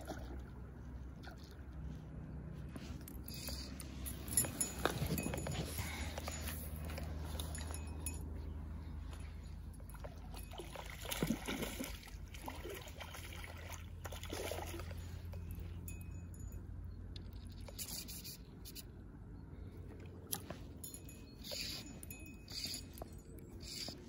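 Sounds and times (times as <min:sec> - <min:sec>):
steady low rumble: 0:00.0 - 0:11.0
fish thrashing in water: 0:09.8 - 0:15.4.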